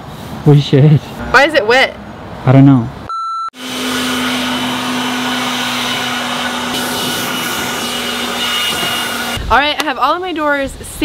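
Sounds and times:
leaf blower running: 3.6s - 9.4s.

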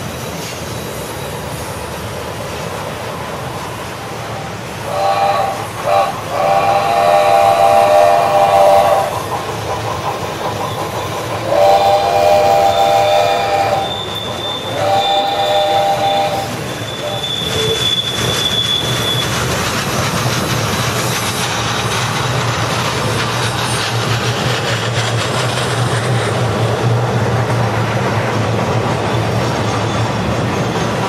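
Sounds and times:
model train rumble and clatter: 0.0s - 31.0s
model train whistle blowing: 4.8s - 9.3s, 11.4s - 19.3s
thin high squeal: 13.6s - 19.5s.

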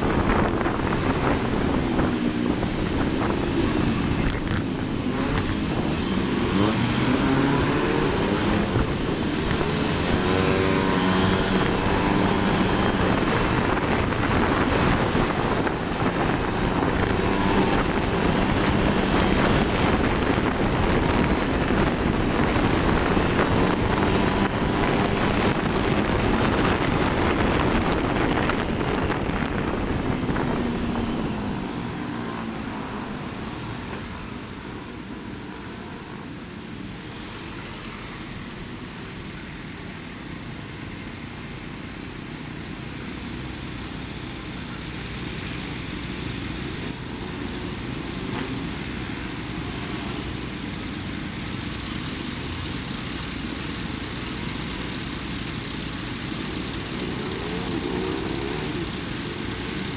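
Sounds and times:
wind on microphone: 0.0s - 33.7s
street traffic: 0.0s - 59.9s.

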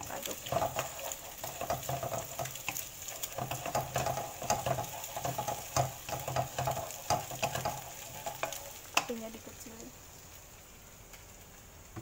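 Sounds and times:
eggs sizzling in oil: 0.0s - 12.0s
spatula scraping and tapping pan: 0.2s - 9.1s.

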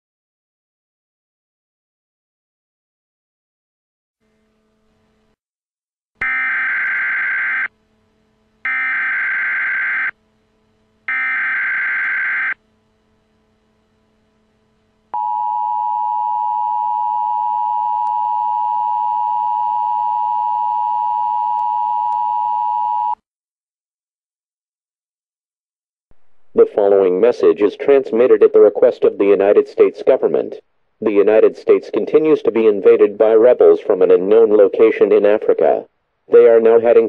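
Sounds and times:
shrill digital data bursts: 8.7s - 10.1s.

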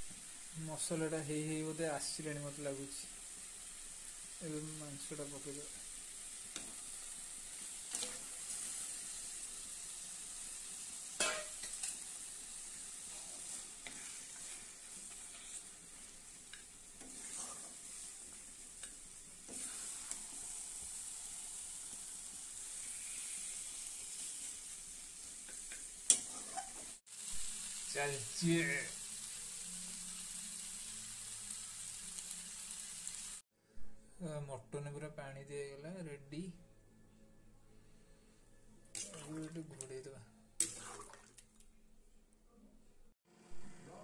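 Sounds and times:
meat sizzling in hot oil: 0.0s - 33.4s
metal spoon scraping a pan: 7.9s - 8.8s, 11.2s - 12.1s, 13.0s - 20.6s, 25.5s - 27.0s.

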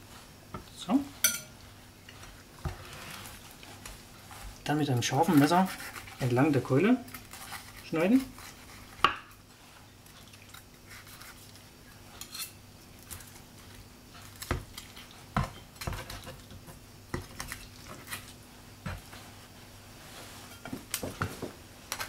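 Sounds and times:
faint steady hum: 0.0s - 22.0s
knife cutting crisp roast duck: 5.3s - 6.3s.

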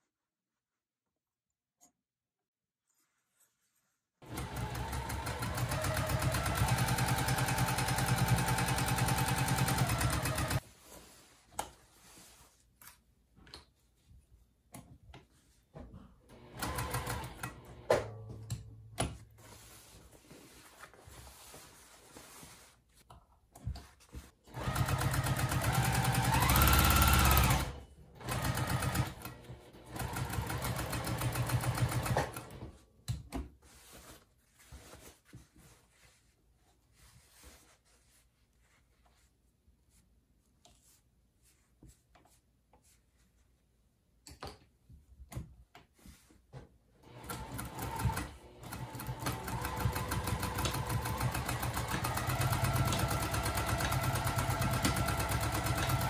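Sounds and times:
electric sewing machine stitching: 4.2s - 10.6s, 16.3s - 18.0s, 24.5s - 32.6s, 47.0s - 56.0s.

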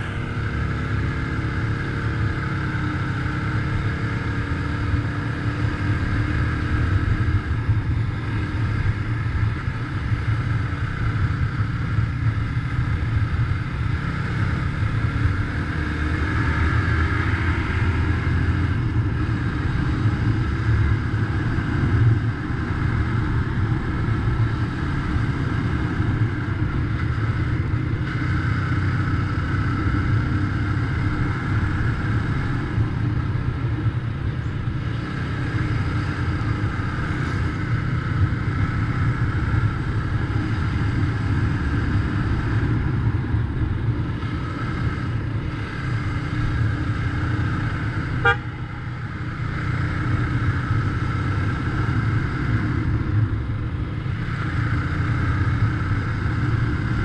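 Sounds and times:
motorcycle engine cruising: 0.0s - 57.0s
road and wind noise: 0.0s - 57.0s
short horn beep: 48.2s - 48.6s.

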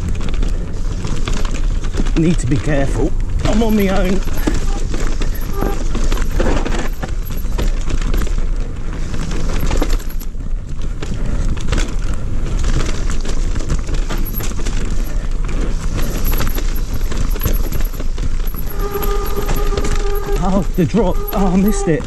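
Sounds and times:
bike rattling and knocking: 0.0s - 22.0s
tyres rolling and skidding on dirt: 0.0s - 22.0s.

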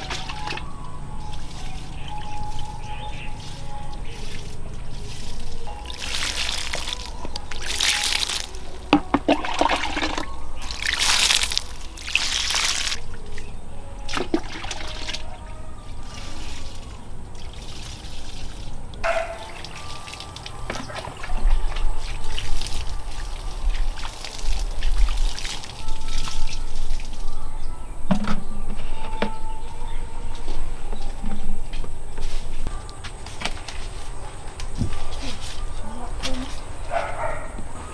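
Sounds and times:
water splashing onto soil: 1.3s - 13.1s, 14.1s - 15.3s, 16.0s - 27.3s.

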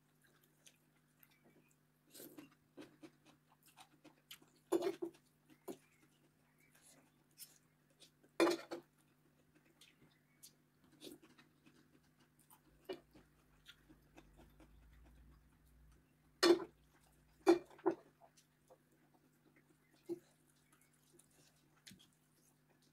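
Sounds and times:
soft chewing: 0.0s - 22.9s
cutlery clinking against plate: 8.4s - 8.8s.

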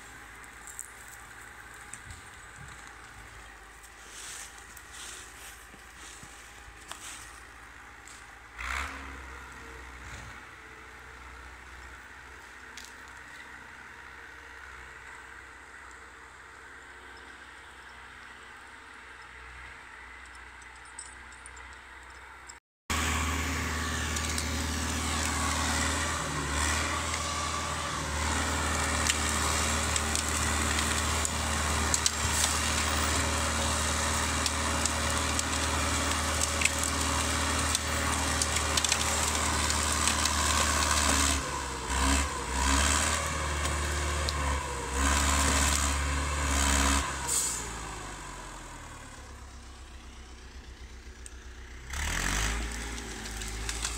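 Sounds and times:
diesel engine running: 0.0s - 53.9s.

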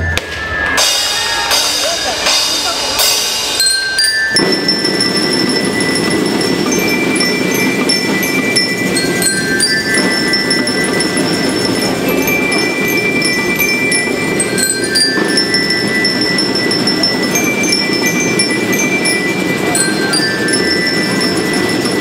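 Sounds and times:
snare drums: 0.0s - 3.7s
bell lyres playing melody: 0.0s - 22.0s
timbales: 0.0s - 22.0s.

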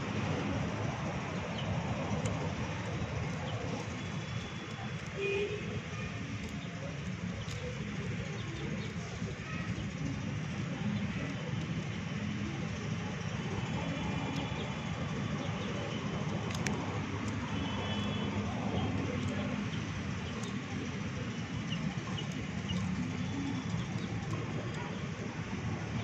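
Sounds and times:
low outdoor rumble: 0.0s - 26.0s
faint sharp clicks: 6.3s - 9.1s, 15.5s - 25.0s.

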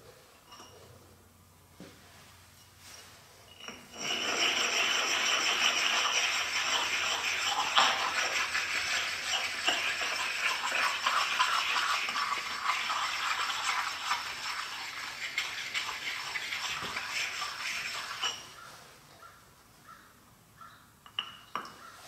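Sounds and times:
hand scrubbing metal table: 3.8s - 18.6s.

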